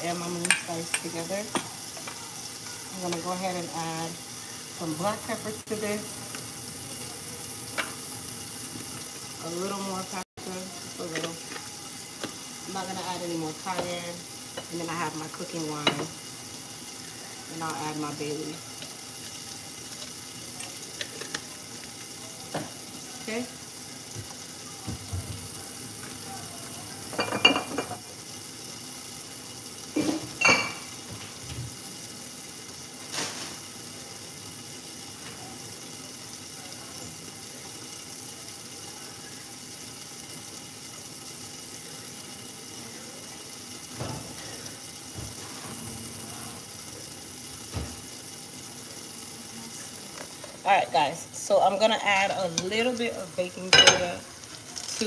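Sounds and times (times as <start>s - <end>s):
chicken sizzling in a pan: 0.0s - 55.0s
dishes and utensils clattering: 27.1s - 28.0s, 29.9s - 31.6s, 53.7s - 55.0s.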